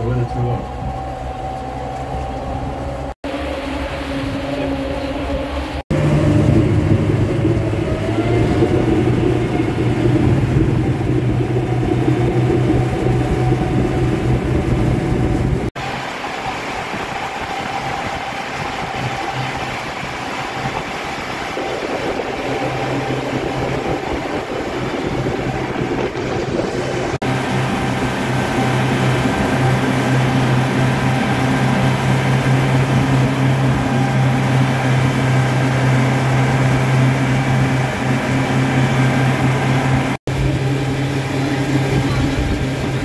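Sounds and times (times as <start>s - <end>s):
boat engine humming: 0.0s - 43.0s
rushing water: 0.0s - 43.0s
wind noise: 0.0s - 43.0s.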